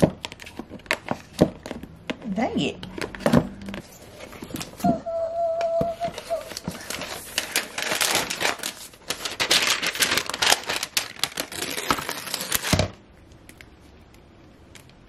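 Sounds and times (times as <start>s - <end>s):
paper rustling and crinkling: 3.8s - 4.9s, 5.8s - 13.0s.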